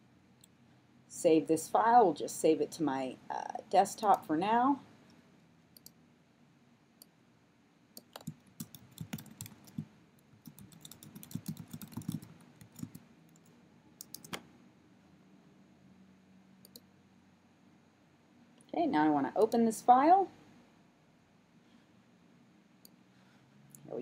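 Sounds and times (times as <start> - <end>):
typing on computer keyboard: 8.0 - 14.4.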